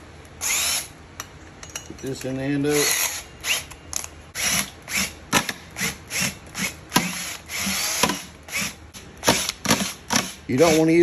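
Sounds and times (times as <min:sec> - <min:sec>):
cordless drill whirring: 0:00.4 - 0:00.9, 0:04.4 - 0:05.2, 0:05.8 - 0:10.8.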